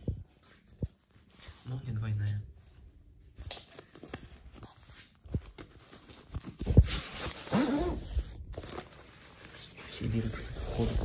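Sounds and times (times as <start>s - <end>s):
nylon jacket rustling: 6.8s - 11.0s.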